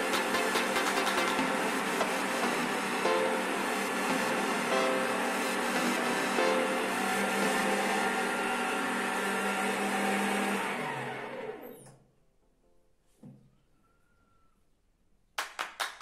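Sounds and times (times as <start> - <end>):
electric meat grinder running: 0.0 - 11.9.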